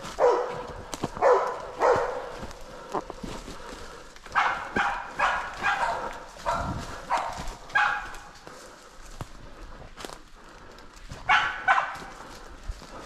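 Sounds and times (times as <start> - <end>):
dog barking: 0.1 - 2.5, 4.3 - 8.4, 11.2 - 12.3.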